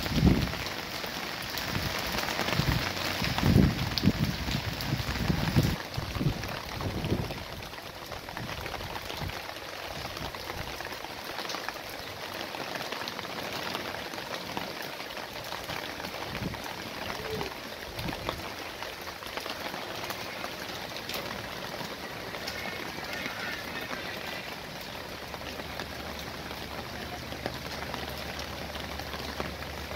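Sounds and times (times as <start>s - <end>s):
wind rumble on microphone: 0.0s - 0.6s, 1.6s - 7.6s
rain falling on leaves: 0.0s - 29.9s.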